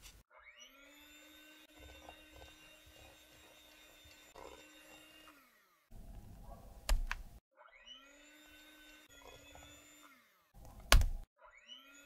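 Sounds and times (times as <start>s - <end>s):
electric hand mixer whining: 0.7s - 6.0s, 8.1s - 10.5s.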